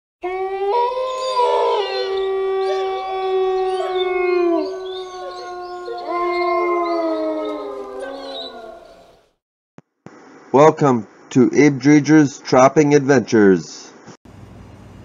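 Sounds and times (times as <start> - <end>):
wolves howling in chorus: 0.2 - 9.2.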